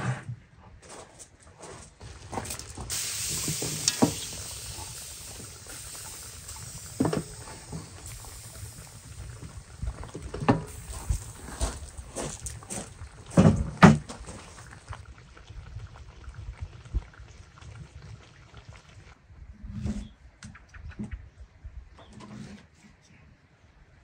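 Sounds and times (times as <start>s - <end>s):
hiss of fruit hitting hot liquid: 2.5s - 14.7s.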